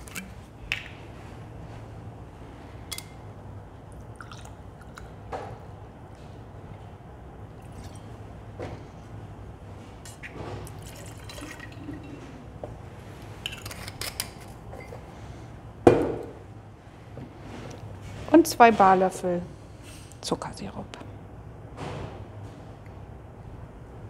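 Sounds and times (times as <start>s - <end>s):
liquid trickling into a glass: 4.1s - 4.6s, 10.7s - 12.2s.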